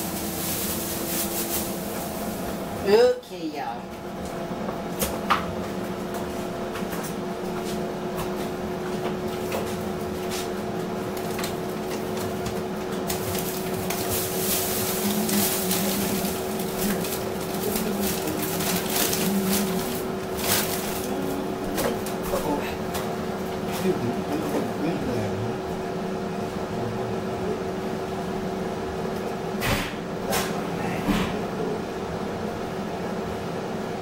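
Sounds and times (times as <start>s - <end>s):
frozen food packages rustling: 0.0s - 2.7s, 9.3s - 24.8s
appliance mechanical hum: 0.0s - 34.0s.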